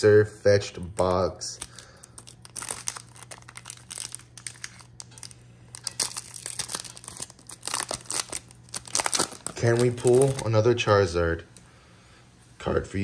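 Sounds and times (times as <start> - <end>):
foil wrapper crinkling and tearing: 0.8 - 10.6.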